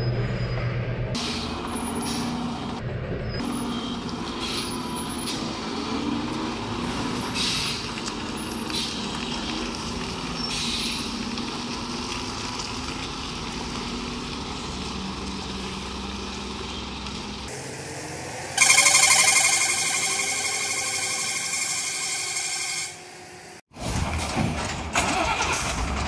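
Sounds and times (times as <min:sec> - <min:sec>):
truck diesel engine: 0:00.4 - 0:26.0
air brake hisses: 0:01.2 - 0:02.4, 0:04.4 - 0:05.6, 0:07.4 - 0:07.9.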